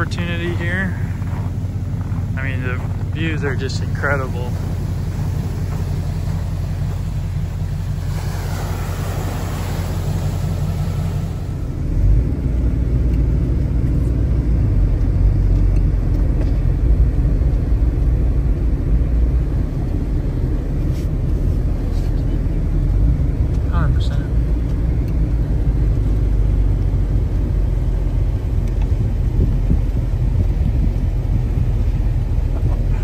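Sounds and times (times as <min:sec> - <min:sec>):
truck engine rumbling: 0:00.0 - 0:33.0
rushing hiss: 0:03.0 - 0:12.0.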